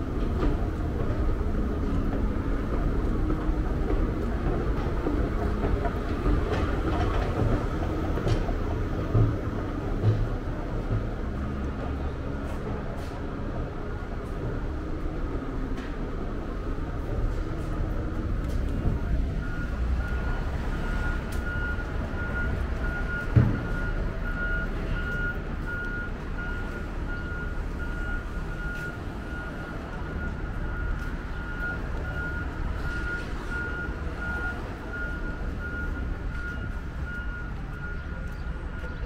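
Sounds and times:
traffic and buses rumbling: 0:00.0 - 0:39.0
reversing alarm beeping: 0:18.7 - 0:39.0
thump: 0:23.3 - 0:23.7.

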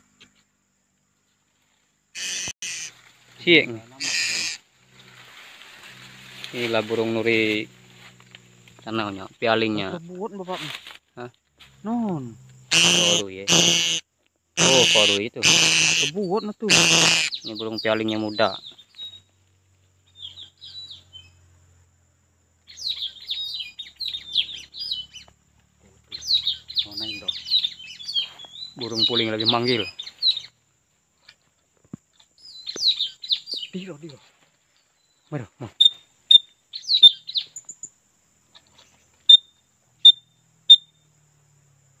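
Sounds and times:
parrots calling shrilly: 0:02.2 - 0:02.9, 0:04.0 - 0:04.6, 0:12.7 - 0:14.0, 0:14.6 - 0:18.5, 0:35.8 - 0:37.5
bamboo bird-call whistle: 0:35.8 - 0:37.6, 0:39.2 - 0:41.0.

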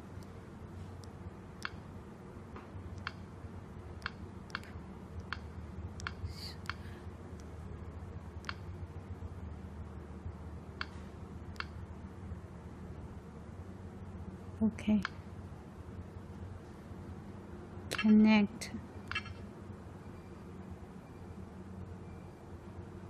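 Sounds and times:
stylus clicking on touchscreen: 0:01.0 - 0:01.9, 0:02.9 - 0:03.3, 0:04.0 - 0:06.8, 0:08.4 - 0:08.7, 0:10.8 - 0:11.8, 0:17.9 - 0:18.3, 0:19.0 - 0:19.4.

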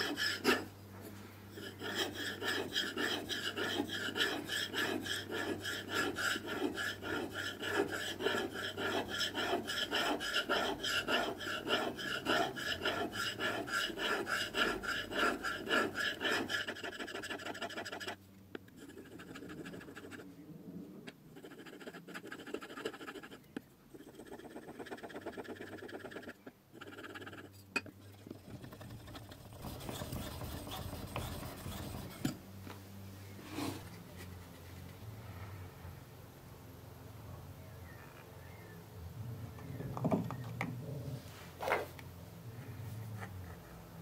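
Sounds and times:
blade scraping on sharpening stone: 0:01.6 - 0:17.2.

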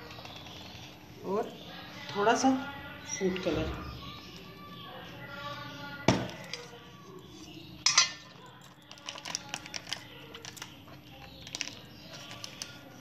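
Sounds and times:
metal kitchenware clinking: 0:07.8 - 0:08.7.

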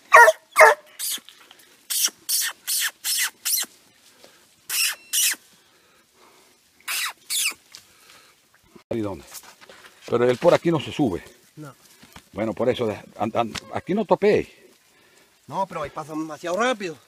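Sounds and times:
brief high squeal: 0:04.7 - 0:05.4.

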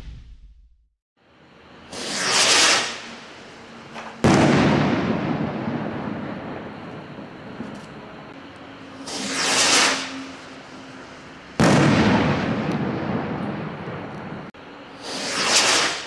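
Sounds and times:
firework rocket launch whoosh: 0:01.8 - 0:06.9, 0:09.0 - 0:10.8, 0:14.9 - 0:16.0
firework loud bang: 0:04.0 - 0:07.9, 0:11.6 - 0:16.0
rumble after bang: 0:04.2 - 0:08.0.

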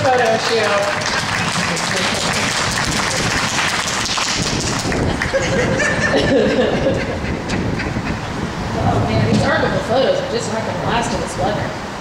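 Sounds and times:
audience clapping: 0:00.0 - 0:05.6
audience laughing: 0:05.0 - 0:08.2
voices: 0:05.6 - 0:11.9.

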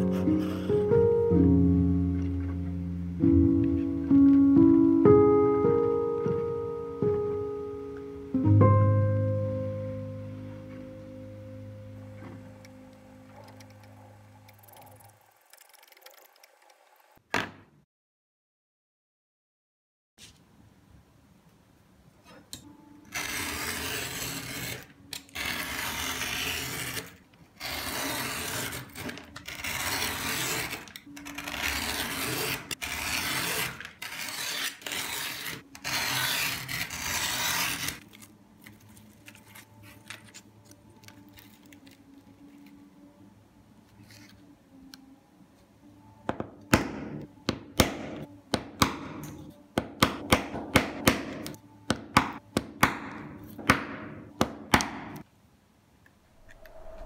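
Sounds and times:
knife cutting sandpaper along ruler: 0:23.1 - 0:38.1.

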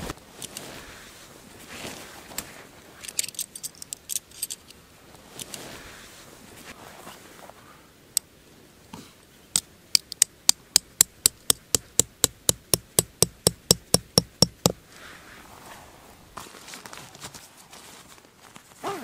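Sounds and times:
hammer striking metal stake: 0:10.0 - 0:14.8.

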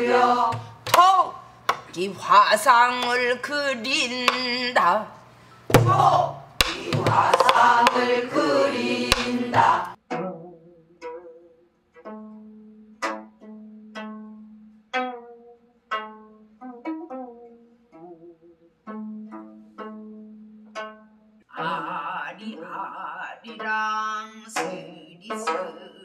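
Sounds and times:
plucked zither melody: 0:10.1 - 0:26.0.

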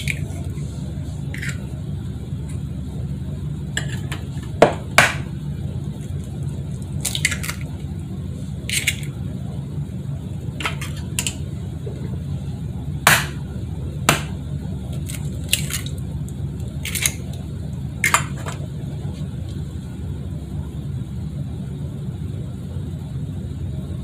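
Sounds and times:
steady low hum: 0:00.0 - 0:24.0
kitchen utensils knocking: 0:10.6 - 0:11.4, 0:18.1 - 0:18.6.

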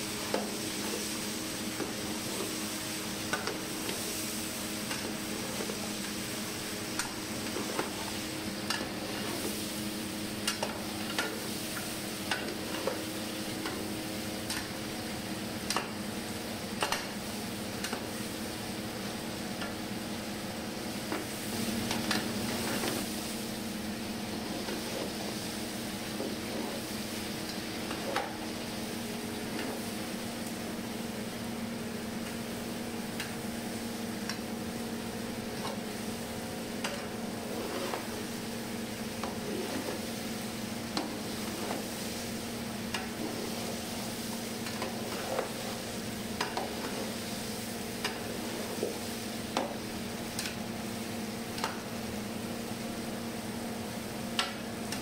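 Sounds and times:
meat and onions sizzling in oil: 0:00.0 - 0:33.1, 0:33.7 - 0:53.0
metal spatula scraping a pot: 0:36.9 - 0:38.3, 0:39.2 - 0:40.1, 0:44.6 - 0:47.2.

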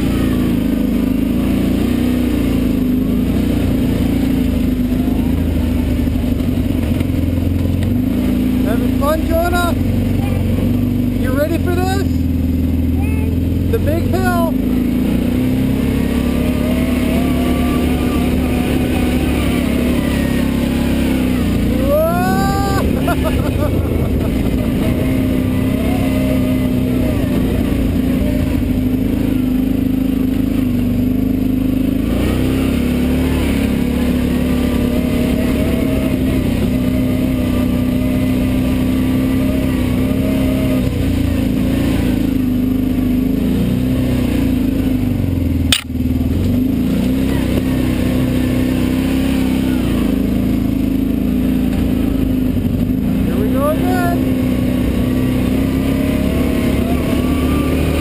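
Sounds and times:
atv engine running: 0:00.0 - 0:58.0
sharp click: 0:45.7 - 0:46.0.

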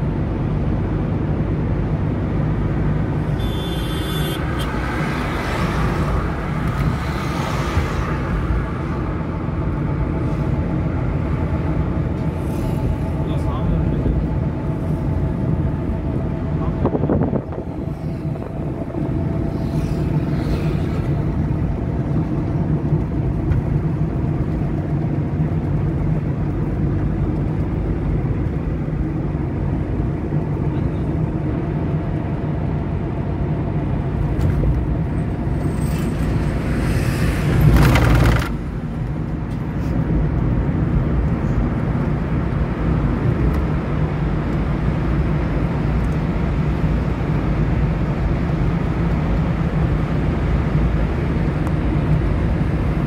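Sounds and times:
car engine from inside cabin: 0:00.0 - 0:53.0
road noise: 0:00.0 - 0:53.0
loud rushing noise: 0:15.8 - 0:21.8, 0:35.2 - 0:38.9.

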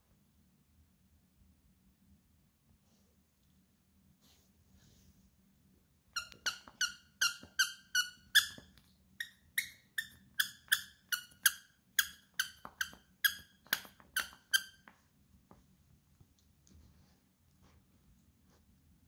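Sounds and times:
toy squeaker squeaking: 0:06.2 - 0:14.9.

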